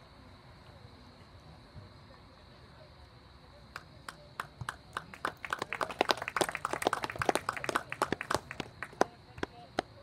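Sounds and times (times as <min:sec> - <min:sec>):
crowd clapping: 0:04.0 - 0:09.9.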